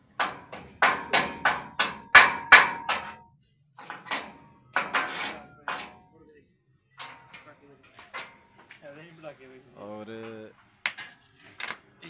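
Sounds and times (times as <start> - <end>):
hammer striking steel frame: 0.0 - 6.1, 7.0 - 8.7.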